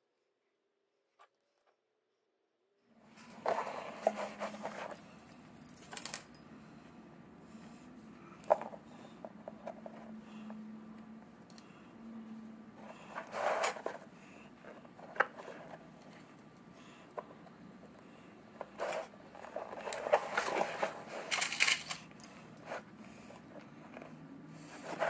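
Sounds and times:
faint steady hum: 2.8s - 25.0s.

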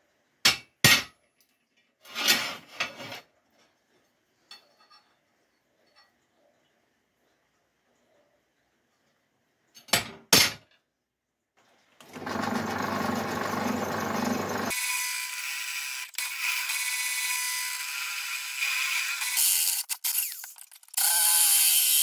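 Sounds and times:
pillar drill running: 12.0s - 14.8s
drill bit cutting steel: 12.2s - 22.0s.

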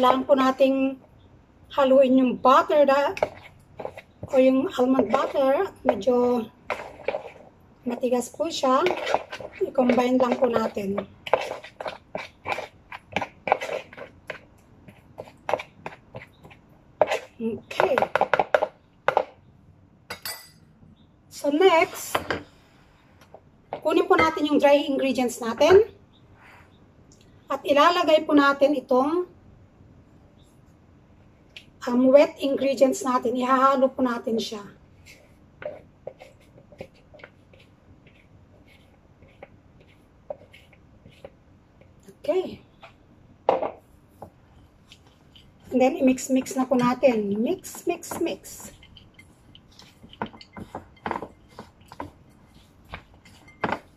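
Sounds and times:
spoon scraping in a bowl: 2.6s - 19.3s, 35.0s - 43.0s, 44.8s - 53.9s.

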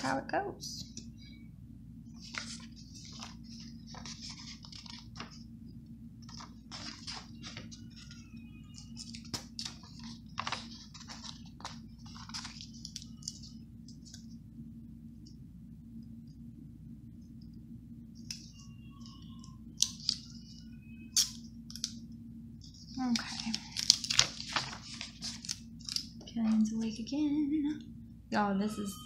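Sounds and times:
steady low hum: 0.0s - 29.0s
paper rustling: 2.2s - 5.4s, 6.2s - 14.3s, 22.7s - 26.3s.

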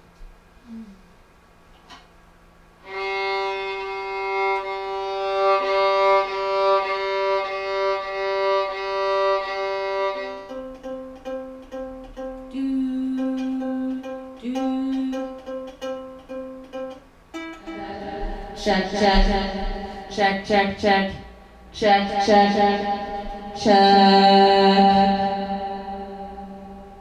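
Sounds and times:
violin long held notes: 2.8s - 27.0s
ukulele plucked: 10.4s - 19.6s.

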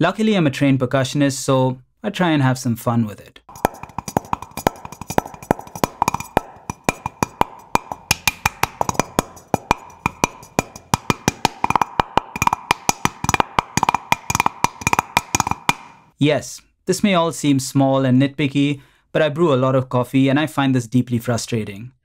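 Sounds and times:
fingers tapping metal cup: 3.5s - 16.1s.

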